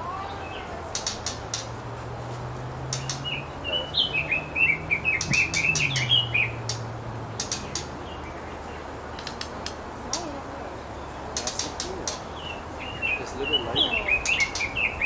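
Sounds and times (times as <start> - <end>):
bird chirping: 0.0 - 15.0
sharp ticks: 0.9 - 1.8, 2.8 - 3.5, 5.0 - 8.0, 9.1 - 10.3, 11.3 - 12.4, 14.2 - 14.8.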